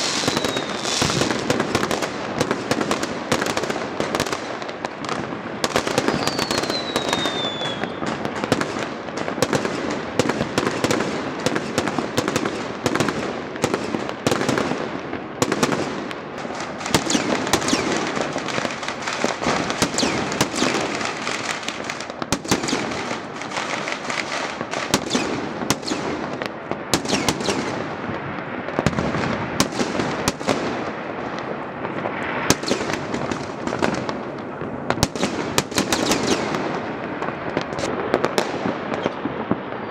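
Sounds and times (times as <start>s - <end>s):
falling firework whistle: 0.0s - 1.4s, 6.0s - 8.2s
fireworks crackling and banging: 0.0s - 39.9s.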